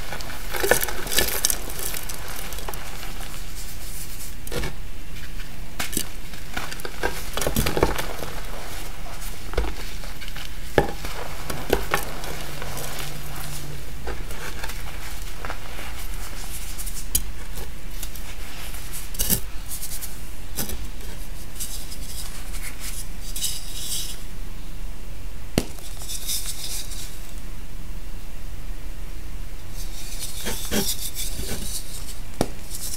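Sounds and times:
chalk crunching and snapping: 0.0s - 23.6s
powder rubbing between fingers: 6.3s - 17.2s.

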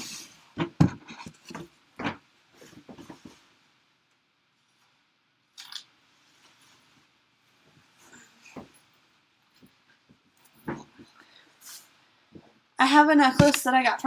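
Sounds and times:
knocks and rustling: 0.5s - 3.5s, 7.6s - 11.2s.

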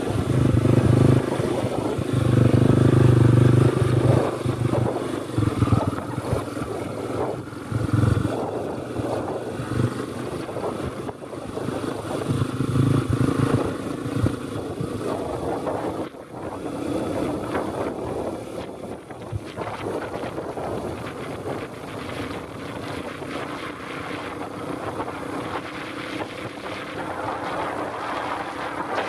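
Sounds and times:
dirt bike engine revving: 0.0s - 10.0s
wind noise on microphone: 0.0s - 29.0s.

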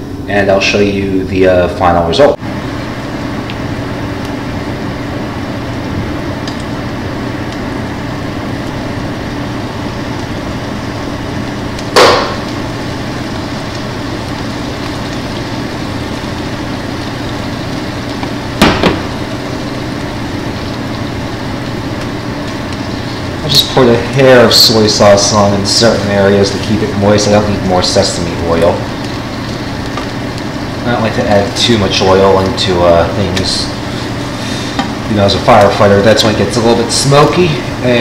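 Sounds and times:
fan hum: 0.0s - 38.0s
bottles knocking on cooktop: 12.0s - 12.5s, 18.6s - 19.1s.

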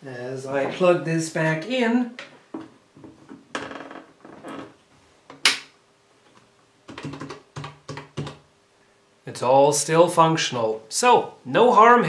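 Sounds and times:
calculator keys clicking: 6.9s - 8.4s.

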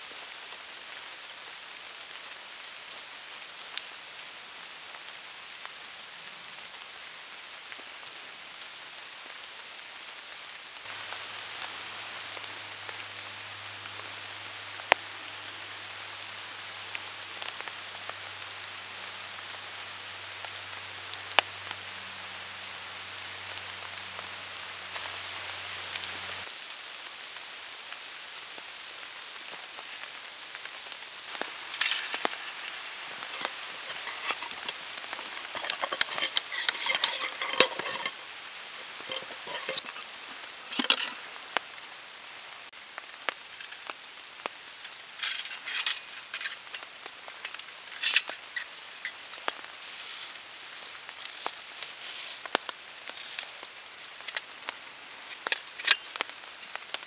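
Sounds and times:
rain hiss: 0.0s - 57.0s
metal cook-pot clinking: 31.3s - 40.0s, 40.7s - 41.2s, 44.8s - 49.4s, 55.3s - 56.8s.

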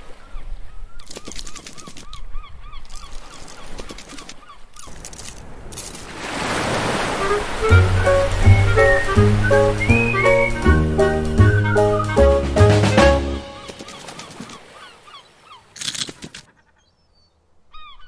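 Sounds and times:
rushing water splash: 4.9s - 14.8s.

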